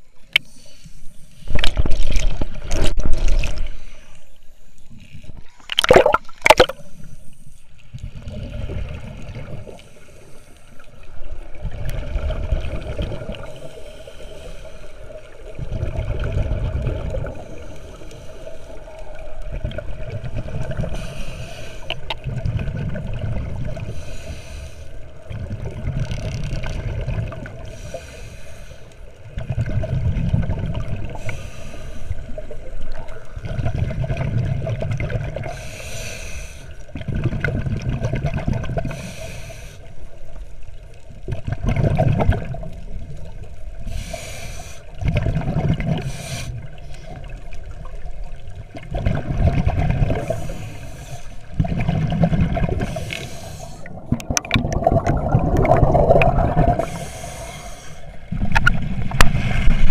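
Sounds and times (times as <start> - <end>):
regulator inhale hiss: 0.4 - 1.6, 6.8 - 7.9, 9.7 - 11.1, 13.4 - 15.4, 17.3 - 19.2, 20.8 - 22.1, 23.8 - 25.2, 27.6 - 29.2, 31.1 - 32.6, 35.4 - 36.9, 38.9 - 40.2, 43.8 - 45.0, 46.0 - 47.2, 50.2 - 51.6, 52.8 - 54.1, 56.8 - 58.3
rumble of exhaled bubbles: 1.5 - 3.8, 5.3 - 6.9, 7.9 - 9.8, 11.2 - 13.6, 15.4 - 17.8, 19.1 - 21.0, 21.9 - 24.0, 25.2 - 27.8, 29.3 - 31.3, 32.3 - 35.5, 36.9 - 39.1, 41.0 - 43.8, 45.0 - 50.8, 51.4 - 53.2, 53.8 - 57.2, 58.2 - 59.9.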